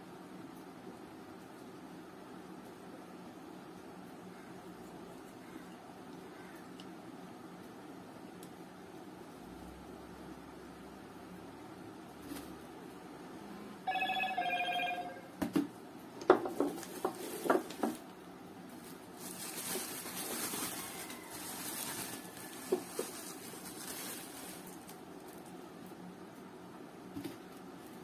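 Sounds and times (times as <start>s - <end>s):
bubble wrap crinkling: 16.5s - 18.1s, 18.7s - 25.6s.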